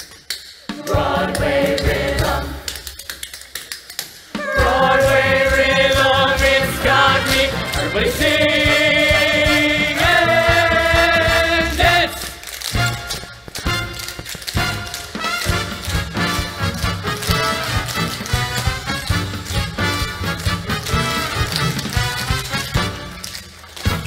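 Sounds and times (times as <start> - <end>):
ensemble singing in chorus: 0.7 - 2.8, 4.4 - 12.4.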